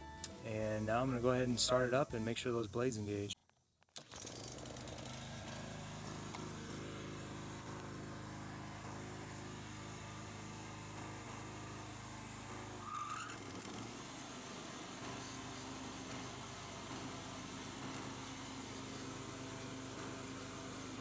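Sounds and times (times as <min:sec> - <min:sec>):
lawn mower engine running: 0:04.0 - 0:21.0
rising squeal of mower blade: 0:11.5 - 0:14.1.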